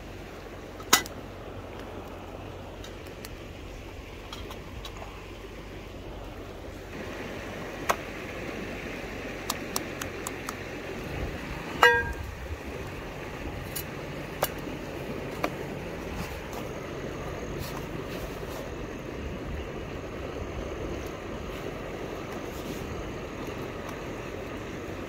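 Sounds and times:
steady rushing hiss: 0:00.0 - 0:25.0
sharp clicks: 0:09.4 - 0:10.6
metal cookware clink: 0:11.8 - 0:12.2.

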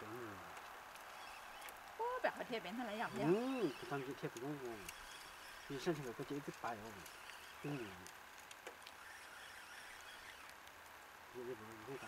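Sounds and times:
faint steady hiss: 0:00.0 - 0:12.0
person speaking: 0:02.0 - 0:04.9, 0:07.6 - 0:08.1.

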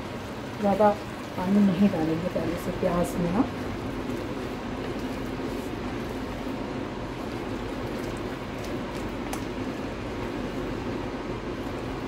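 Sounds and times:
steady background hum: 0:00.0 - 0:12.0
hand squishing batter: 0:03.6 - 0:12.0.

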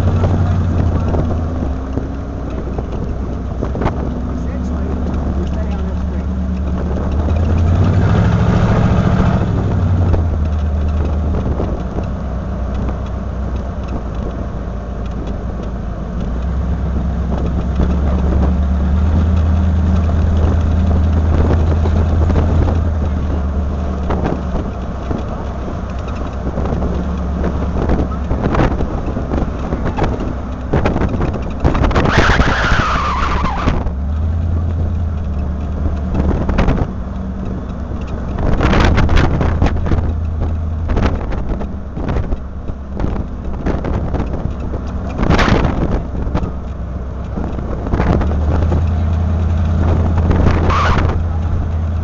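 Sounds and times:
vehicle engine hum: 0:00.0 - 0:52.0.

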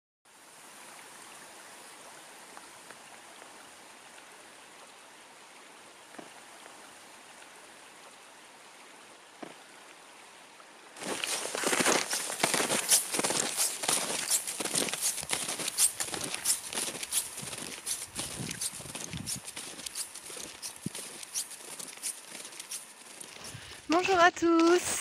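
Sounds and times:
faint steady hiss: 0:00.3 - 0:25.0
footsteps crunching in snow: 0:11.0 - 0:25.0.

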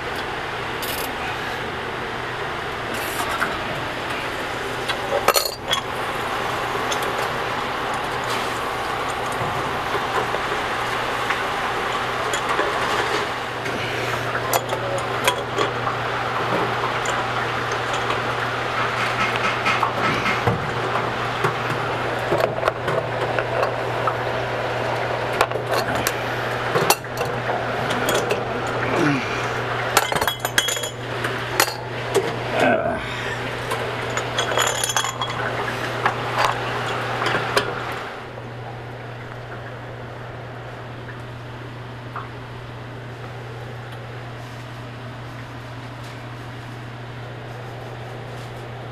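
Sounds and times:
steady noise with low hum: 0:00.0 - 0:48.9
metal wrenches clinking: 0:34.1 - 0:35.4.

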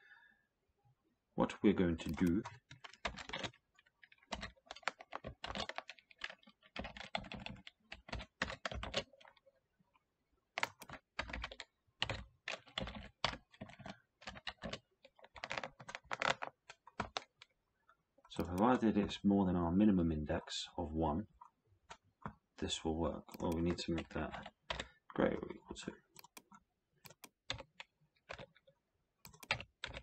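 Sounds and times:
typing on computer keyboard: 0:02.0 - 0:09.5, 0:10.6 - 0:17.6, 0:18.3 - 0:19.2, 0:23.2 - 0:30.0.

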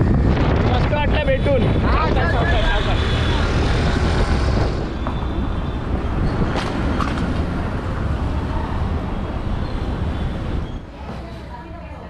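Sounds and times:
wind and road rumble: 0:00.0 - 0:11.6.

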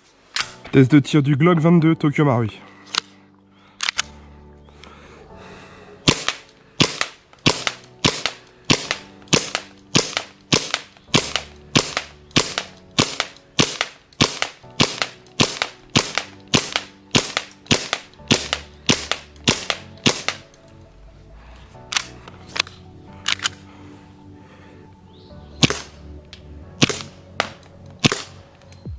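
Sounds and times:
airsoft pistol shots: 0:06.1 - 0:20.4, 0:25.6 - 0:25.9, 0:26.8 - 0:28.4.

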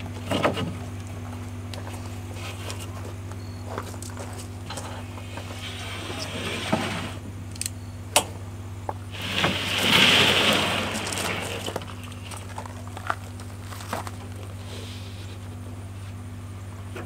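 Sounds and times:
drywall sheets scraping: 0:09.1 - 0:12.0.

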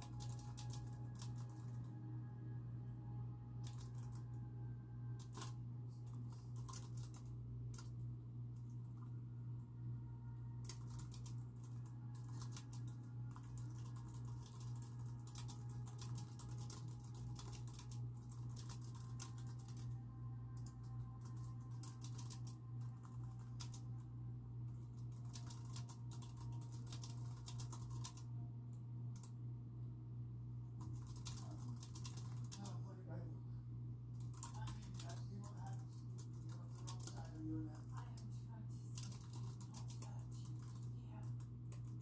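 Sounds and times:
fast typing on keyboard: 0:00.0 - 0:01.9, 0:03.6 - 0:04.4, 0:05.2 - 0:08.0, 0:10.6 - 0:23.9, 0:24.8 - 0:28.3, 0:30.8 - 0:32.8, 0:34.2 - 0:38.1, 0:39.0 - 0:42.0
low hum: 0:00.0 - 0:42.0.

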